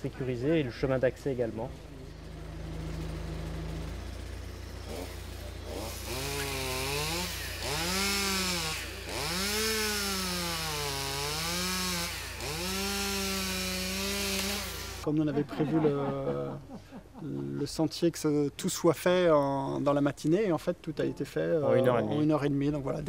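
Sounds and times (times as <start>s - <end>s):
vehicle engine idling hum: 0.0s - 7.7s
chainsaw revving: 1.4s - 15.1s.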